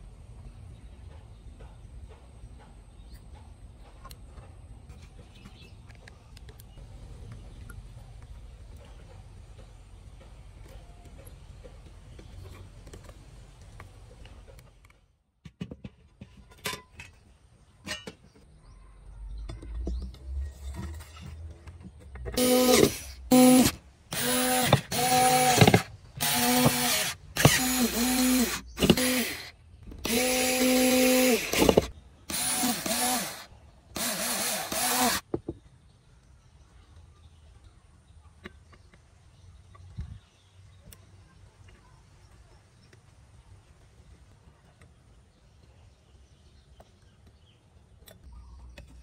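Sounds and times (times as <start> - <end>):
electric screwdriver whine: 22.4 - 33.4, 34.0 - 35.2.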